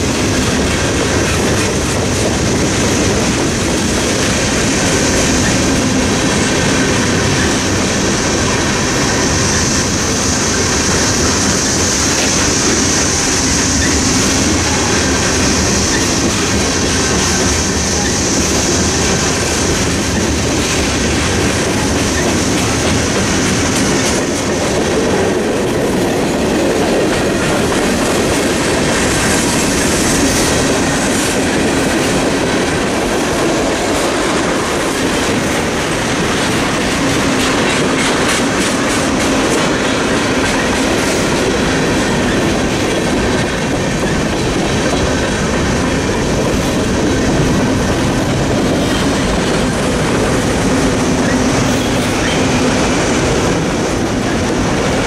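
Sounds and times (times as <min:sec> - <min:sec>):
train wheels clattering on rails: 0:00.0 - 0:55.0
wheel squeal: 0:13.4 - 0:15.0.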